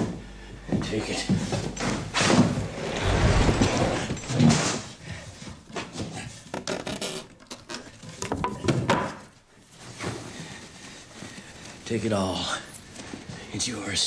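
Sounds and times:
objects being handled: 1.8s - 4.9s.

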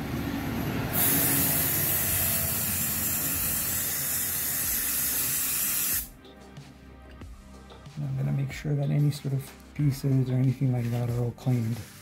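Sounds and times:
aerosol spray hissing: 1.0s - 6.1s.

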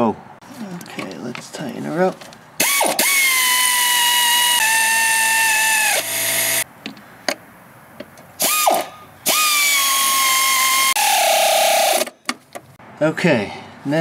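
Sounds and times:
power drill whining: 2.6s - 6.6s, 8.4s - 12.1s.

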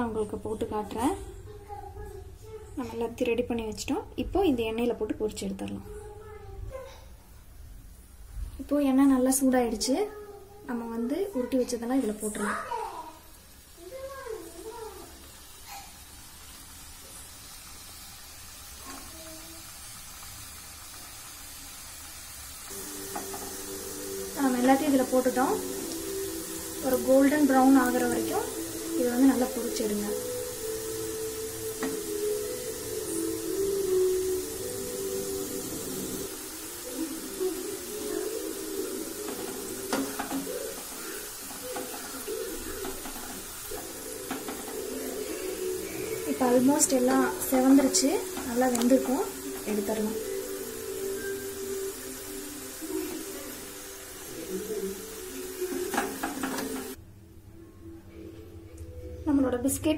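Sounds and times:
dough deep-frying in oil: 12.0s - 57.0s.

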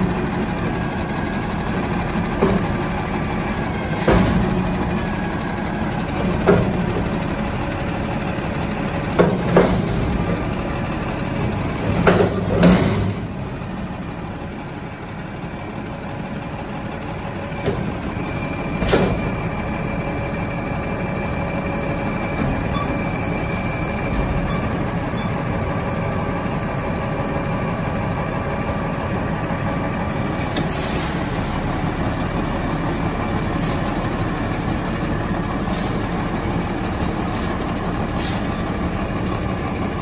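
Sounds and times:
garbage truck engine running: 0.0s - 40.0s
hydraulic arms lifting bin: 0.5s - 7.5s, 9.0s - 13.7s, 17.5s - 19.9s
metal bangs and clangs: 3.8s - 4.9s, 9.2s - 10.5s, 11.7s - 13.4s.

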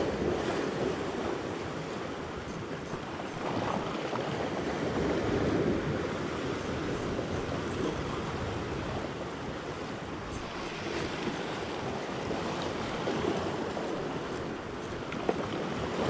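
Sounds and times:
waves breaking on rocks: 0.0s - 16.0s
wind buffeting microphone: 0.0s - 16.0s.

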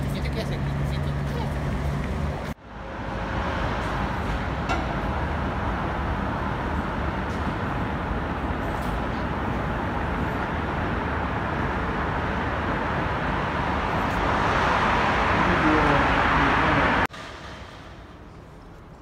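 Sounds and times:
city street traffic: 0.0s - 19.0s
vehicle passing close: 10.8s - 18.6s.

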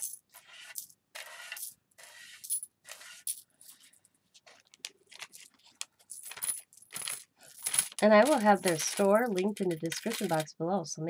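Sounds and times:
metal charms clinking: 5.1s - 10.5s.

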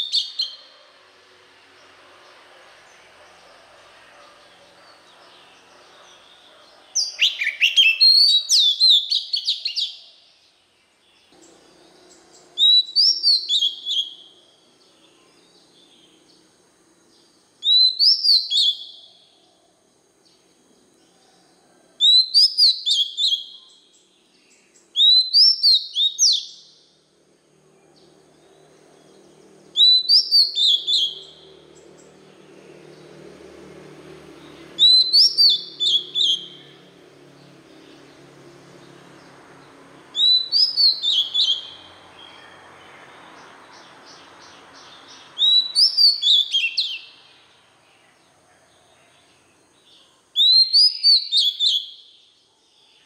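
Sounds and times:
bird singing whistled notes: 0.0s - 0.8s, 4.2s - 10.2s, 11.2s - 16.5s, 17.1s - 19.4s, 22.0s - 26.9s, 29.7s - 32.1s, 34.4s - 38.1s, 40.1s - 48.2s, 49.0s - 53.0s.

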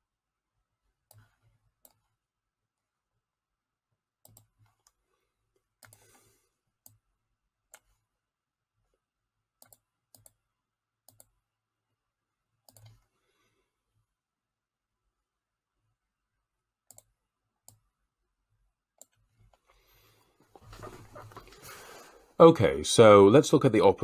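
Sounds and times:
computer mouse clicks: 1.1s - 2.1s, 4.2s - 5.0s, 5.8s - 6.2s, 7.7s - 8.0s, 9.6s - 10.4s, 11.0s - 11.4s, 12.6s - 13.1s, 16.8s - 17.9s, 19.0s - 19.7s.

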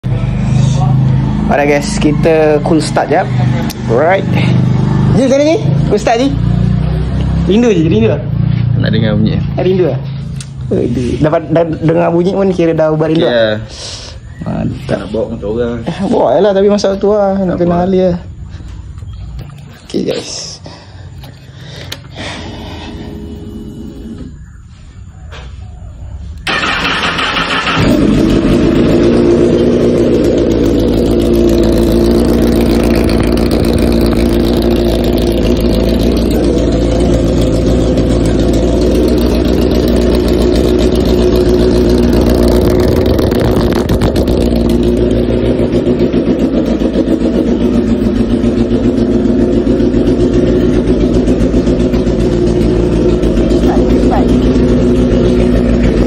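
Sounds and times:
motorcycle engine idling: 0.0s - 13.5s, 26.4s - 56.0s
starter motor cranking: 26.4s - 45.9s.

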